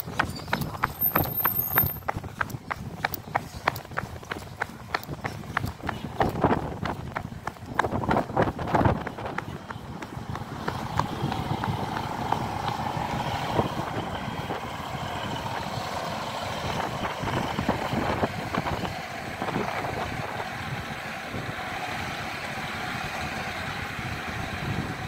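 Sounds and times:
wheels knocking: 0.0s - 20.9s
train diesel engine idling: 9.1s - 25.0s.

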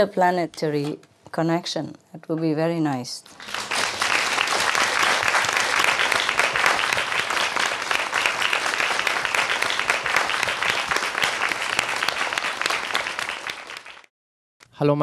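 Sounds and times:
audience applauding: 3.3s - 14.1s.

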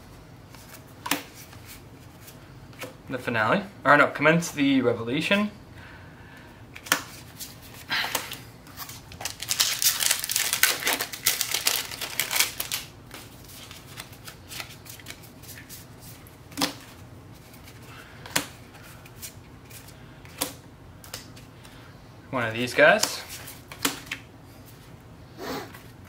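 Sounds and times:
foil wrapper crinkling and tearing: 8.9s - 12.9s.

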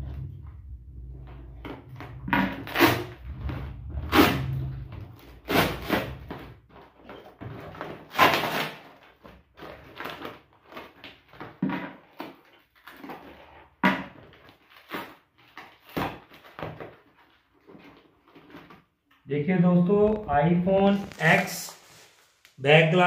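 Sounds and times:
packing tape ripping: 2.6s - 3.2s, 7.8s - 11.4s
plastic wrap crinkling: 19.9s - 22.6s.

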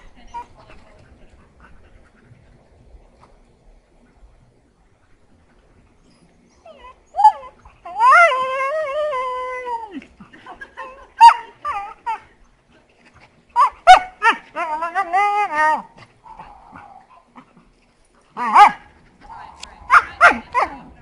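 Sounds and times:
dog whine-howling: 6.7s - 10.0s.

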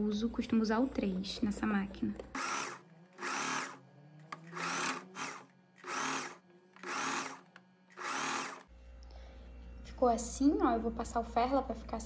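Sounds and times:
sewing machine stitching: 2.3s - 8.7s.

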